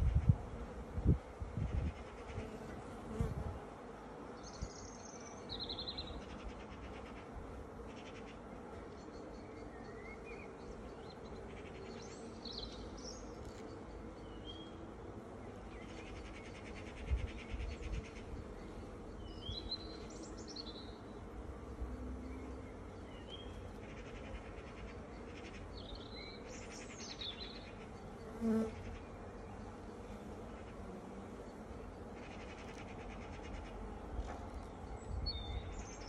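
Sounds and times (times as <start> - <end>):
bees buzzing: 27.7 - 34.2.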